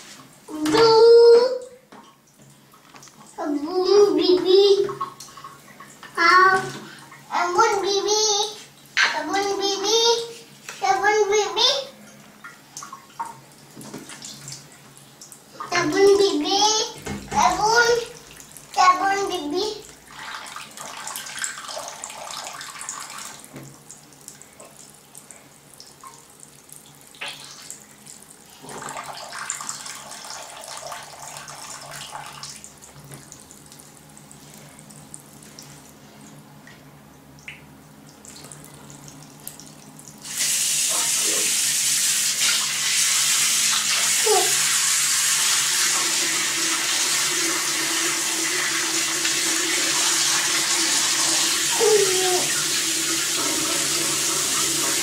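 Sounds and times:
tap running into sink: 0:17.0 - 0:17.8.

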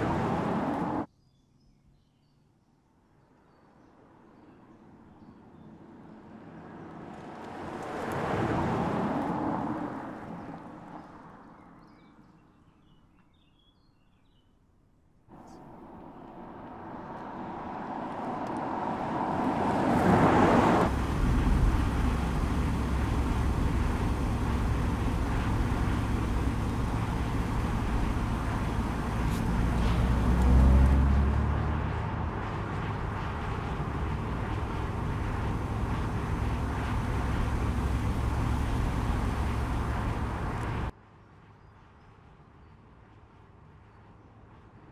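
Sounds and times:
road noise with low rumble: 0:00.0 - 0:01.1, 0:03.4 - 0:13.6, 0:14.8 - 0:44.9
car driving past: 0:15.3 - 0:40.9.

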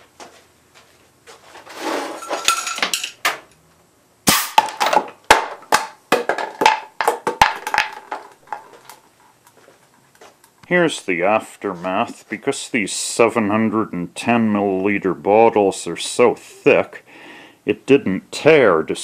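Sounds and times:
plastic bottle clattering: 0:04.6 - 0:08.9.

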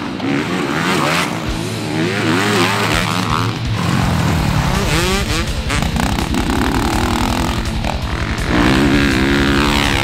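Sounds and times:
motocross bike engine revving: 0:00.0 - 0:10.0.

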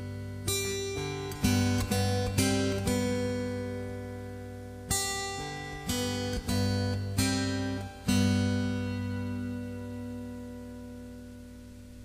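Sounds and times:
acoustic guitar strumming chords: 0:00.0 - 0:12.0.

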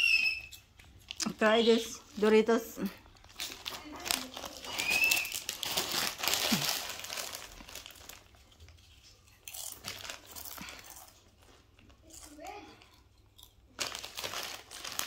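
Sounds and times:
foil chip bag crinkling: 0:03.1 - 0:12.5, 0:13.4 - 0:15.0.

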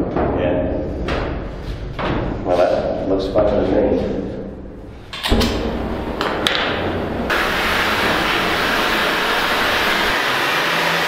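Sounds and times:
gas torch flame rushing: 0:07.3 - 0:11.0.

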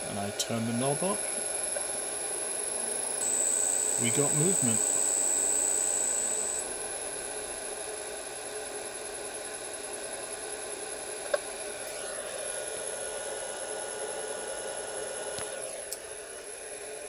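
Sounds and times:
lathe motor whining hum: 0:00.0 - 0:17.0
cooling fan hiss: 0:02.8 - 0:06.6.

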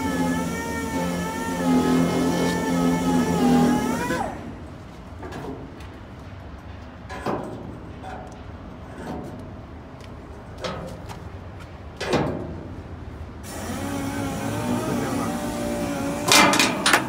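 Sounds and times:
metal clank: 0:16.3 - 0:17.0.

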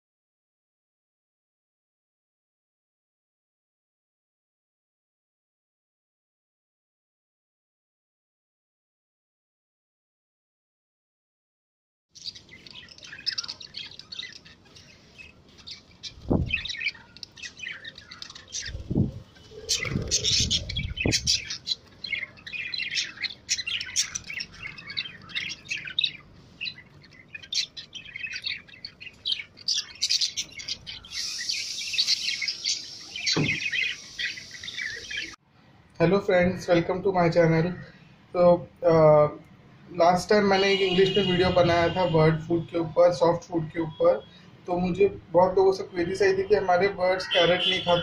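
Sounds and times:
budgerigars chirping and chattering: 0:12.2 - 0:35.4, 0:40.3 - 0:48.0.

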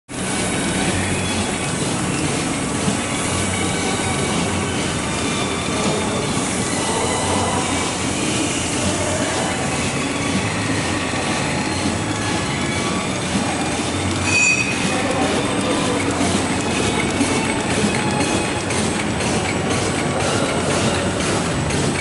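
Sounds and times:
machine clattering: 0:00.1 - 0:22.0
short high squeal: 0:14.2 - 0:15.0.

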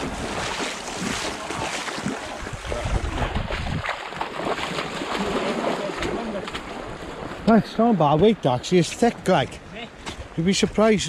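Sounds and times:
wind rumble on microphone: 0:00.0 - 0:04.8
sea surf washing on shore: 0:00.0 - 0:11.0.

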